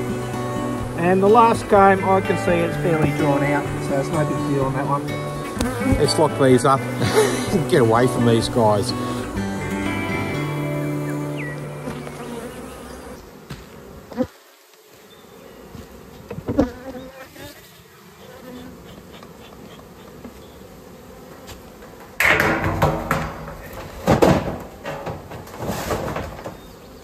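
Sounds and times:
honeybees buzzing: 0.0s - 27.0s
sharp knocks: 22.2s - 26.6s.

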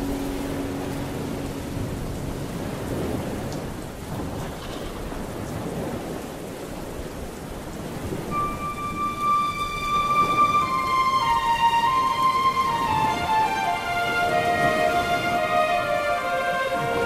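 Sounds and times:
low rumble of thunder: 0.0s - 10.4s
steady rain: 0.0s - 17.0s.

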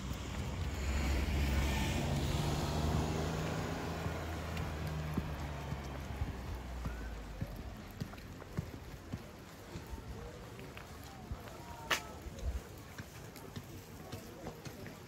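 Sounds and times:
vehicle passing by: 0.0s - 7.8s.

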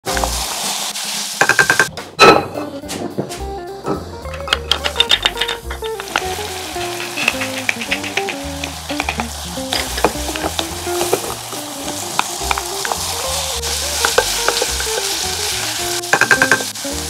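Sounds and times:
vegetables sizzling in butter: 0.0s - 1.9s, 4.1s - 17.0s
background music: 1.9s - 17.0s
pieces dropping into pan: 3.9s - 13.2s, 14.0s - 16.9s
wooden spoon clicks: 4.3s - 6.3s, 7.0s - 11.2s, 16.1s - 16.6s.

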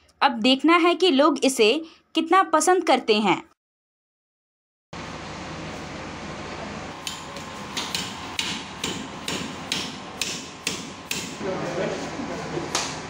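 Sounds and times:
sharp knocks: 7.0s - 11.4s.

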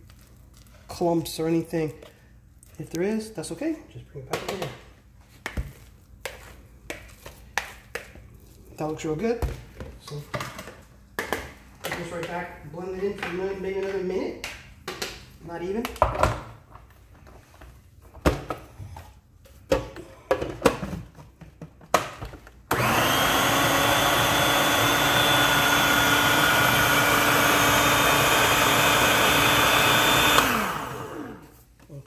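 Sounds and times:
food processor motor humming: 22.7s - 31.5s.

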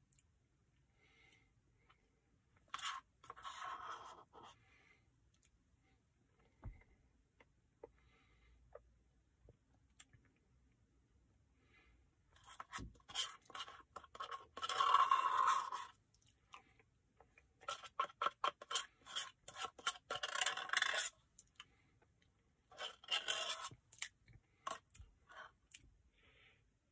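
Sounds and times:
plastic spoon scraping paper cup: 2.7s - 4.6s, 12.4s - 16.0s, 17.6s - 21.2s, 22.7s - 23.8s.

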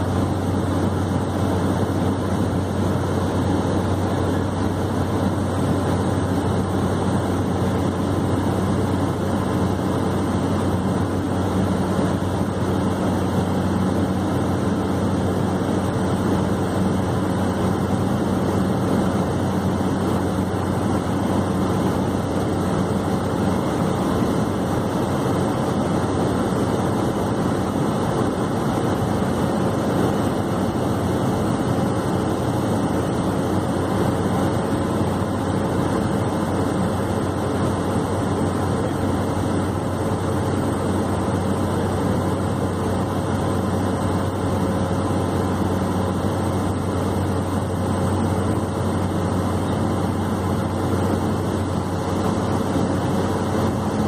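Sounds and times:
turboprop engine drone in cabin: 0.0s - 54.0s.

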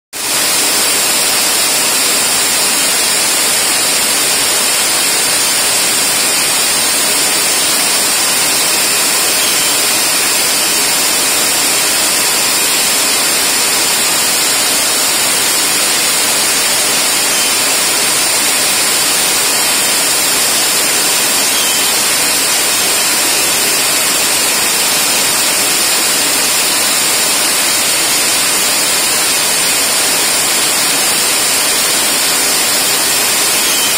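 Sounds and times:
milling machine cutting steel: 0.2s - 33.9s.

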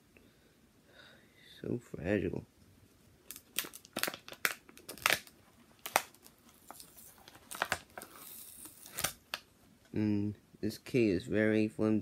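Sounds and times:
plastic pieces clicking and crinkling: 3.3s - 9.4s.

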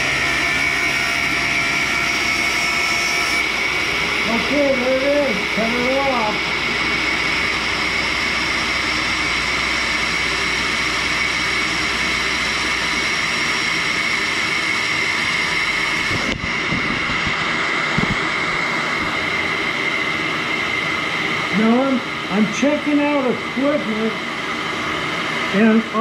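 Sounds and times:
dust vacuum running: 0.0s - 26.0s
grinder cutoff wheel whine: 0.0s - 26.0s.

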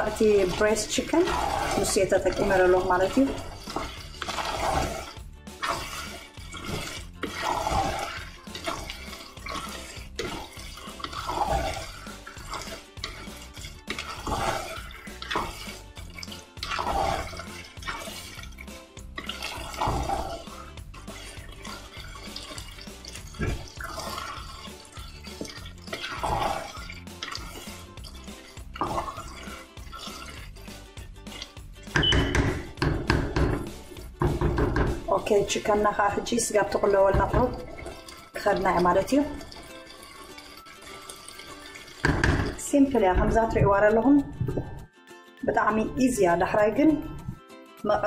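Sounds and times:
wet squelching and sloshing sauce: 0.0s - 32.0s, 33.7s - 42.8s
spoon knocking against pot: 31.9s - 35.1s.

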